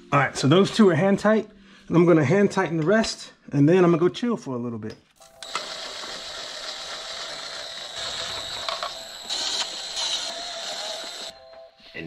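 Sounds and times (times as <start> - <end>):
electric ratchet motor whirring: 5.4 - 11.3.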